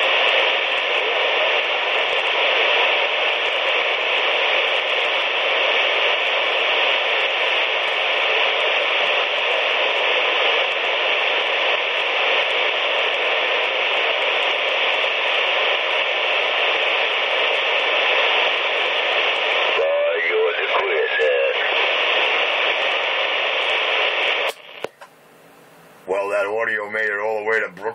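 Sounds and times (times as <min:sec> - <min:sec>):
radio static hiss: 0:00.0 - 0:27.9.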